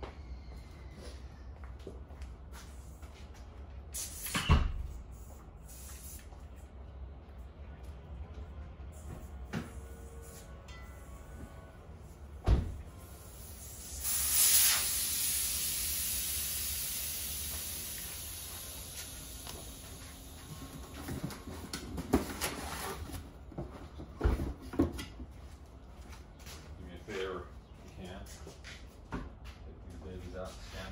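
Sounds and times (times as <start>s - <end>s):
air hissing out of a tire: 3.9s - 6.4s, 13.0s - 20.9s.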